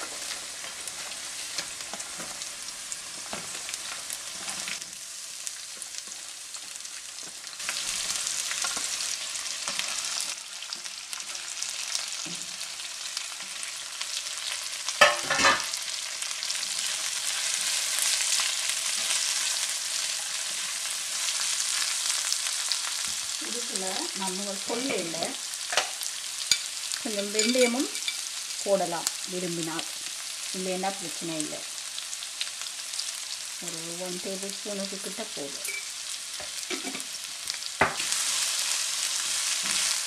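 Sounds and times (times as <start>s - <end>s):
spatula stirring onions: 0.0s - 23.3s, 35.6s - 40.0s
onions sizzling in hot oil: 0.0s - 40.0s.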